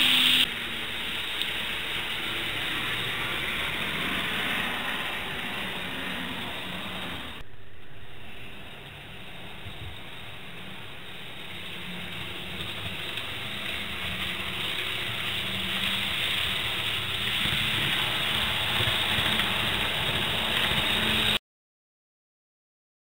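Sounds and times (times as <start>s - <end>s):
model train whirring on track: 0.0s - 7.4s, 8.5s - 21.4s.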